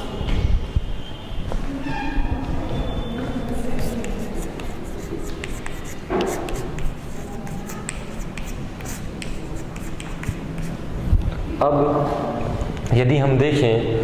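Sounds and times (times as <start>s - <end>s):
chalk scratching on blackboard: 3.4s - 10.9s.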